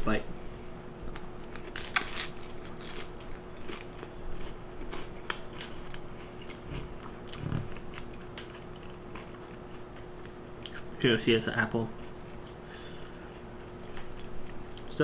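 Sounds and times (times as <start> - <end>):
crunchy pastry chewing: 1.1 - 11.1.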